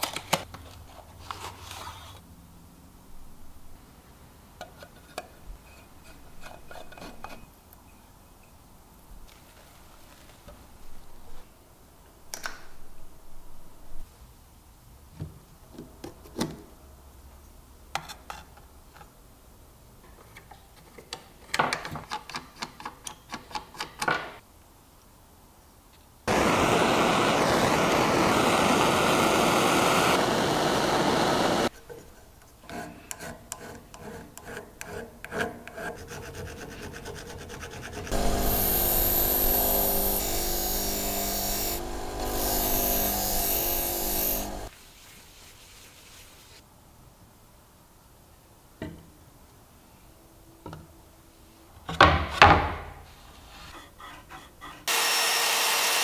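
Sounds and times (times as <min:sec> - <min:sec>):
buffing wheel humming: 0:26.3 - 0:31.7, 0:38.1 - 0:44.7
gas torch hissing: 0:26.3 - 0:31.7, 0:38.1 - 0:44.7
scraping and rubbing strokes: 0:31.7 - 0:46.6, 0:53.1 - 0:54.9.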